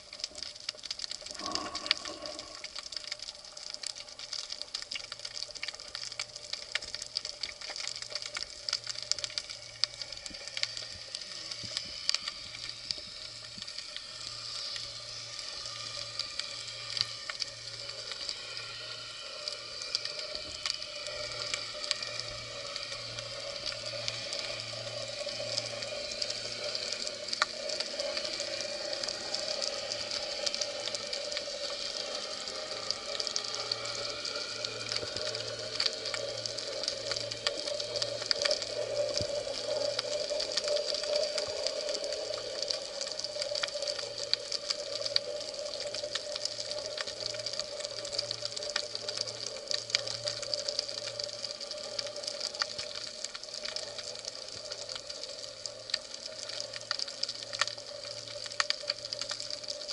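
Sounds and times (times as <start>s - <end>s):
low pulsing hum: 0.0s - 3.5s
crackle of tiny clicks: 0.0s - 59.9s
steady hiss: 0.0s - 59.9s.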